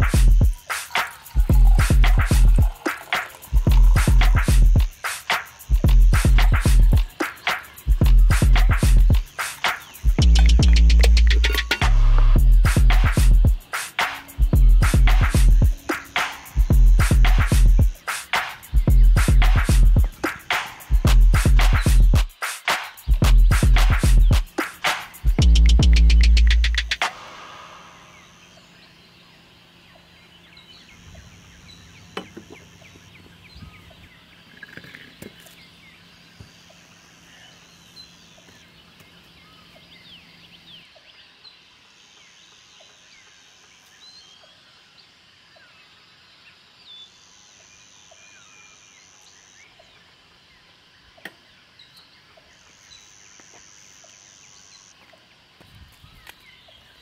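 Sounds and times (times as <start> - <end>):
high buzzing bird trill: 0.0 - 38.8
birds chirping: 0.0 - 47.2, 47.8 - 57.0.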